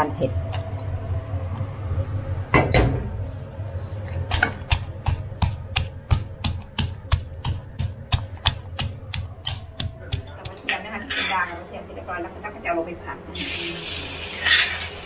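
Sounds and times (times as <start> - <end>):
pestle pounding in mortar: 4.3 - 10.7.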